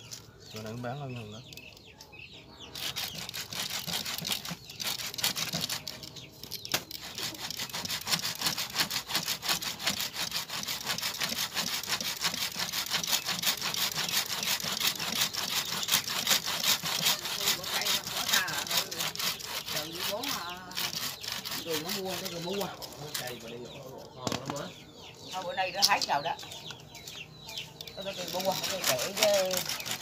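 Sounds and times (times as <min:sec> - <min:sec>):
frame saw cutting wood: 0:02.8 - 0:23.6, 0:27.9 - 0:30.0.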